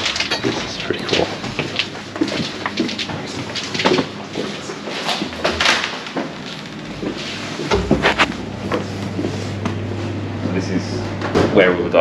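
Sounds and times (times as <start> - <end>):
doors swinging open: 0.0 - 6.9.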